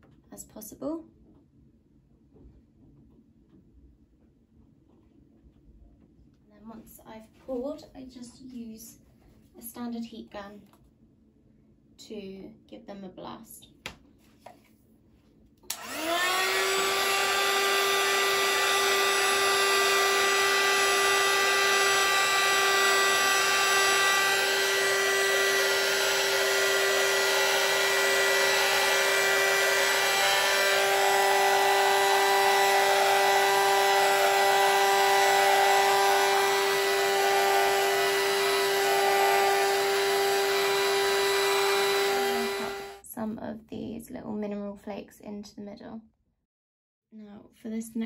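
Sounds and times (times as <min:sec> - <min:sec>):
heat gun motor whine: 0:15.7 - 0:43.0.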